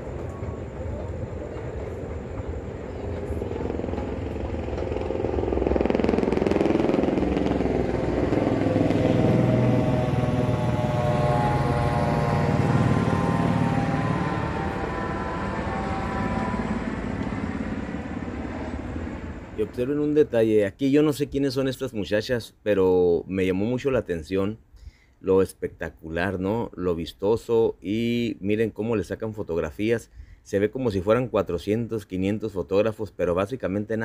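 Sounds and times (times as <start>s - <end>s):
aircraft passing overhead: 0.0s - 20.6s
street background noise: 0.0s - 34.0s.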